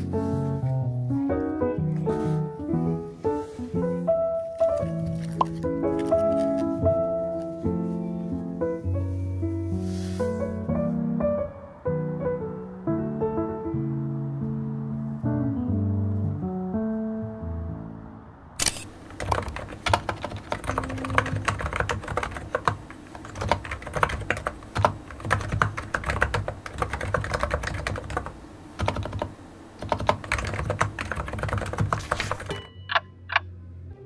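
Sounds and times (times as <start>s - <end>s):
computer keyboard typing: 18.6s - 33.4s.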